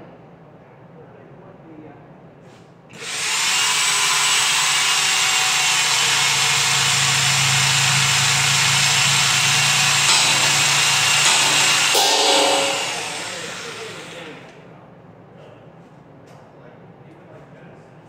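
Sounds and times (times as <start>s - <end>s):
power tool running: 3.0s - 14.6s.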